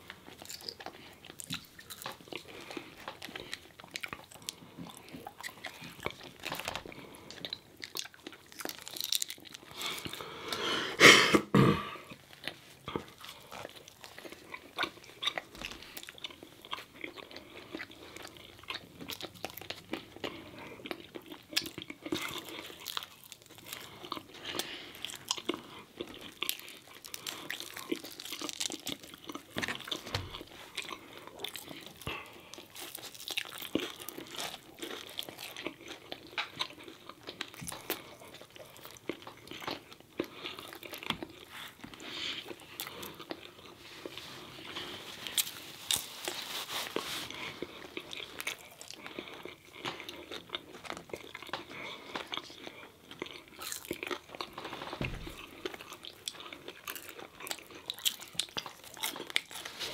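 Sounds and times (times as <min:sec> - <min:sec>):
crunching fried food: 0:00.0 - 0:10.4, 0:12.1 - 0:59.9
crust crackling: 0:40.4 - 0:52.7.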